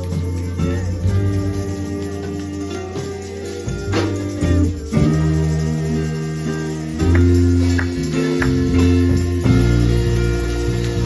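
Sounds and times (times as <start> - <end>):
band playing instrumental music: 0.0 - 11.0
cymbal taps: 7.0 - 9.0.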